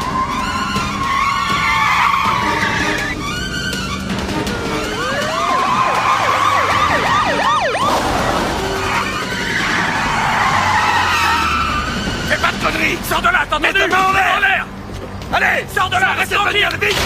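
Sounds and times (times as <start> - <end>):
police siren yelping: 0.0 - 12.0
tyres skidding on dirt: 0.0 - 17.0.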